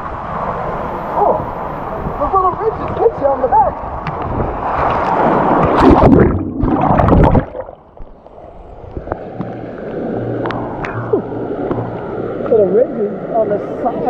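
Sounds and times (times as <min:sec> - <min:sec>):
water rushing down a water slide: 0:00.0 - 0:07.8
soft steady wash of water: 0:00.0 - 0:14.0.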